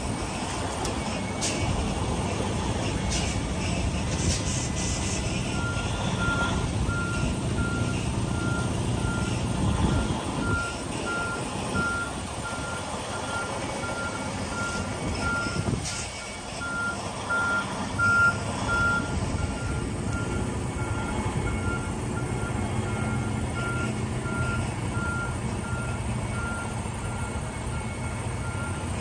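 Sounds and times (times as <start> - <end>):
diesel engine running: 0.0 - 29.0
truck backup alarm beeping: 0.0 - 29.0.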